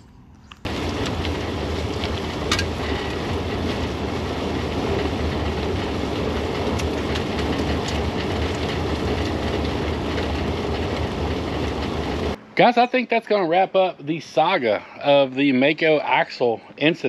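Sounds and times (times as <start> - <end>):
trailer tyres rumbling on asphalt: 0.6 - 12.9.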